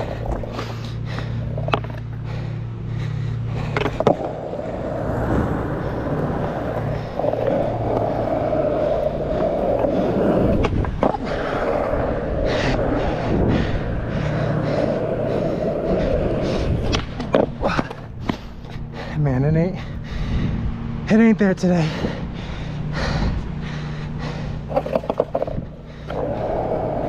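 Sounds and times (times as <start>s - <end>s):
skateboard wheels rolling on asphalt: 0.0s - 27.0s
skateboard knocking on pavement: 3.7s - 5.2s, 24.7s - 27.0s.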